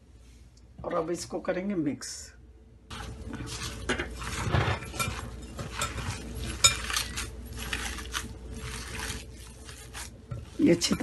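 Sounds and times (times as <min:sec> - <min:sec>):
hand kneading meat: 0:02.9 - 0:11.0.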